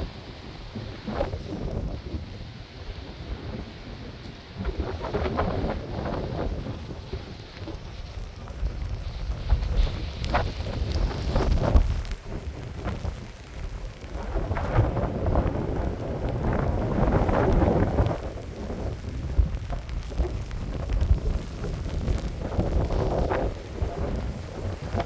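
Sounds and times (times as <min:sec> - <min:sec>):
heavy rain: 0:00.0 - 0:25.0
wind gusts buffeting microphone: 0:00.0 - 0:25.0.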